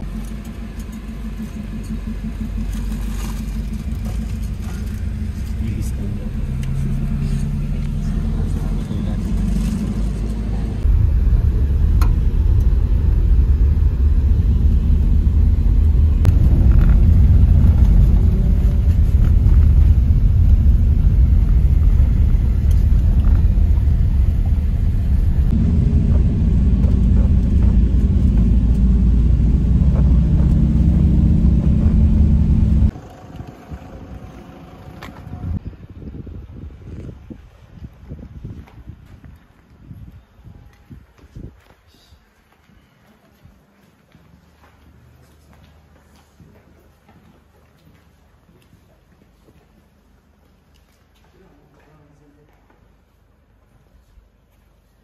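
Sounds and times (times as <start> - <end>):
vehicle rumbling on road: 0.0 - 37.4.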